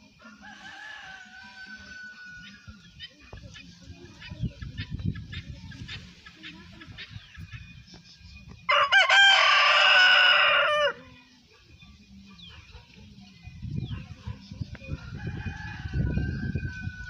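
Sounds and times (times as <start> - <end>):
rooster crowing: 0.2 - 2.6, 8.7 - 11.0, 15.0 - 17.0.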